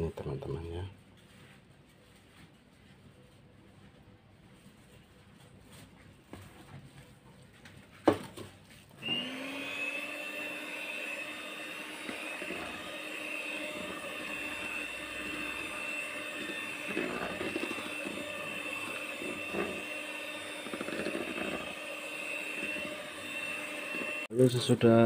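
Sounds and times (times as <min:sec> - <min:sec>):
electric hand mixer whining: 0:08.9 - 0:25.0.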